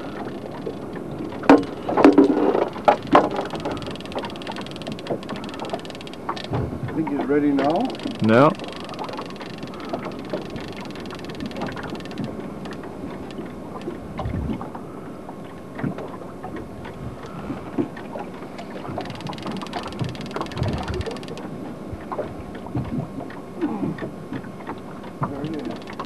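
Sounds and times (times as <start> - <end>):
water on boat: 0.0 - 26.0
wind on microphone: 14.0 - 15.0, 18.9 - 23.2.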